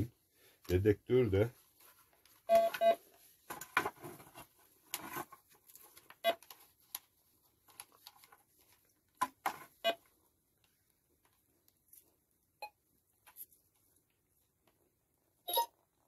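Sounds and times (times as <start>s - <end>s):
metal detector beeps: 15.5s - 15.7s.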